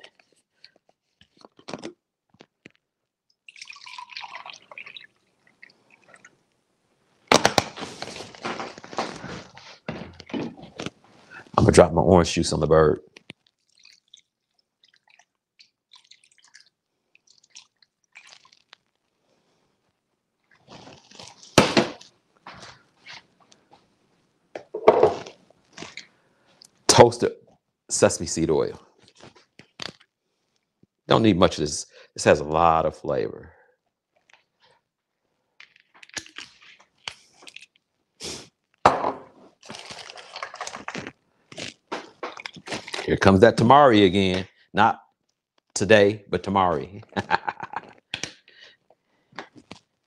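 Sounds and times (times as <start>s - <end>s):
wet splashing and squishing: 3.4s - 6.4s, 13.2s - 19.1s, 20.4s - 23.2s, 39.6s - 43.1s.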